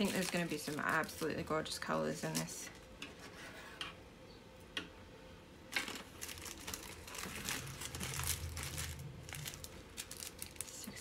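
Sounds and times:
plastic packaging crinkling: 0.0 - 2.8, 5.7 - 11.0.

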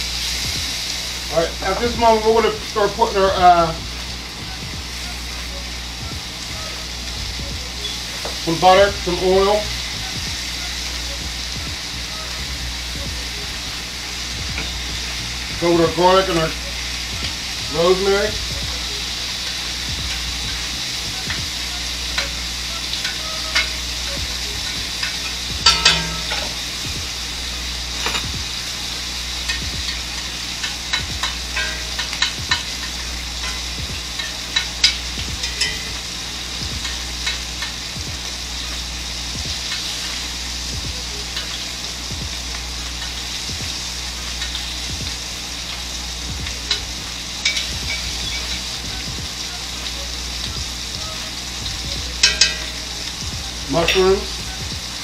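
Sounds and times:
butter and oil sizzling in a pan: 0.0 - 55.0
utensil tapping a pan: 19.4 - 27.1, 29.4 - 38.3, 46.4 - 49.3, 52.0 - 54.3.

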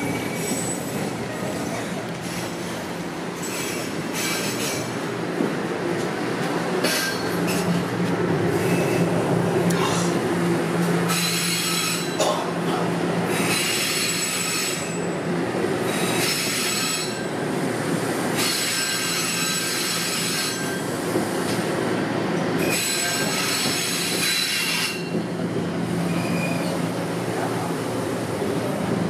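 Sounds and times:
subway train rolling: 0.0 - 29.0
high-pitched wheel squeal: 11.1 - 12.2, 18.4 - 20.9, 26.1 - 26.8.

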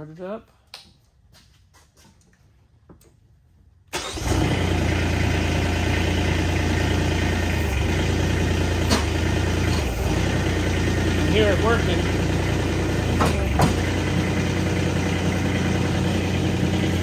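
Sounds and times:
diesel engine starting and idling: 3.9 - 17.0.

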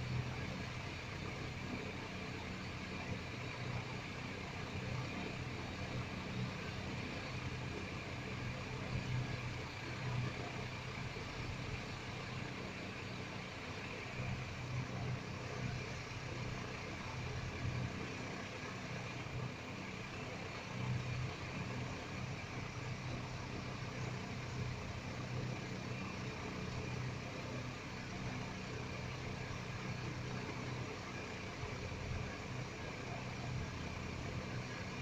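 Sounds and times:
background hum and hiss: 0.0 - 35.0.

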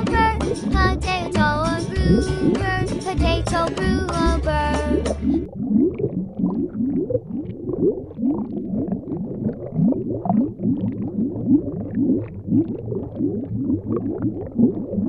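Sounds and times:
underwater bubbling gurgle: 0.0 - 2.9, 3.7 - 15.0.

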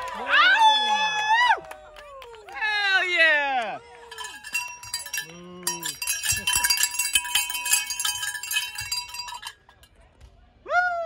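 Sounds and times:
metallic ringing and jingling: 4.1 - 10.0.

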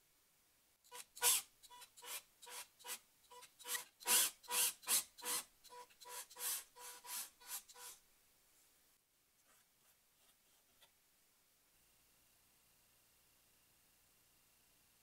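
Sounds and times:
drill boring into wood: 0.9 - 8.0.

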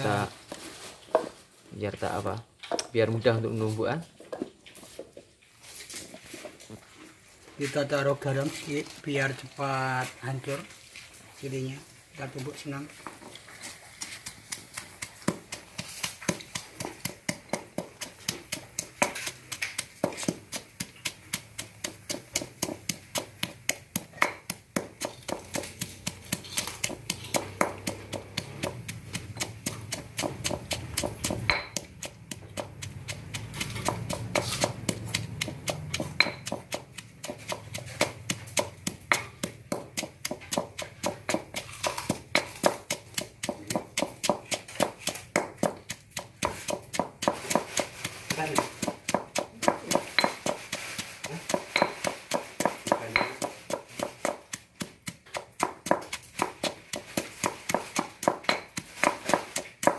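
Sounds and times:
pestle pounding in stone mortar: 12.2 - 59.9.

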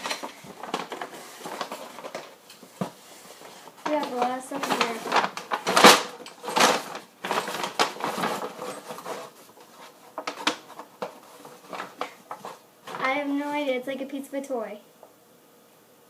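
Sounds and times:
bag rustling and crinkling: 0.0 - 13.7.

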